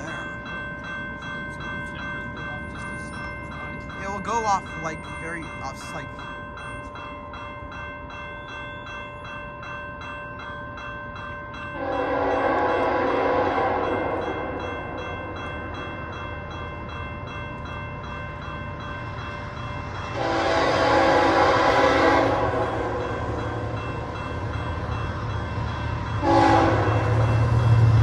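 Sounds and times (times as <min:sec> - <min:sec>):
crossing bell ringing: 0:00.0 - 0:28.0
train horn blasts: 0:11.8 - 0:14.6, 0:20.1 - 0:23.1, 0:26.2 - 0:28.0
diesel locomotive rumble: 0:11.8 - 0:28.0.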